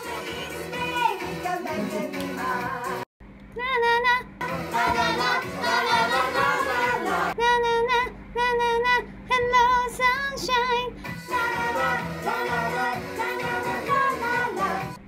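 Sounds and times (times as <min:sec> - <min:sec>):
upbeat pop song: 0:00.0 - 0:03.1, 0:04.4 - 0:07.4, 0:09.3 - 0:15.0
high childlike singing: 0:03.6 - 0:12.5.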